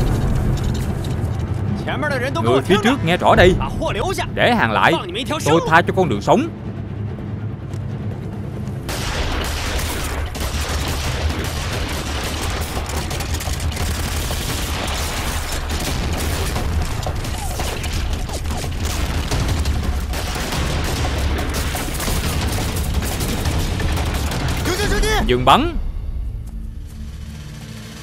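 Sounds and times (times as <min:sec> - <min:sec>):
pistols and rifles firing rapidly: 0:08.9 - 0:25.2.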